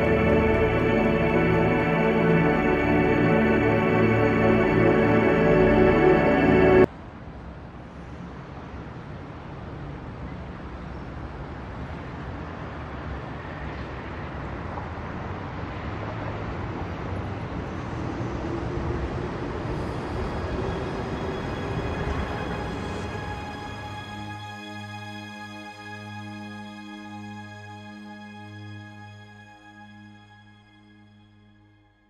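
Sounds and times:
music: 0.0s - 6.9s, 19.5s - 32.0s.

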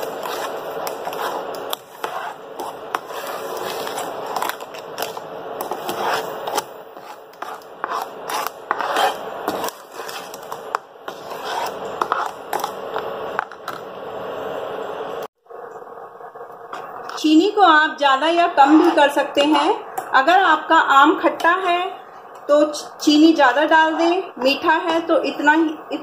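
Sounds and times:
sugar grating: 0.0s - 12.8s
plastic spoon scraping a pan: 0.0s - 13.0s.

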